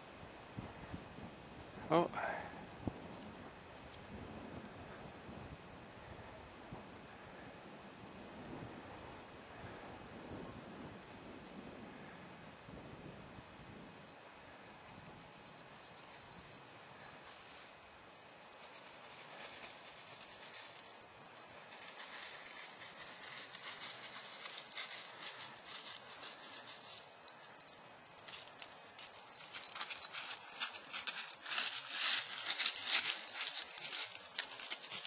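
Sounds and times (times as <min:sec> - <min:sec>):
footsteps crunching on snow: 0:28.3 - 0:35.0.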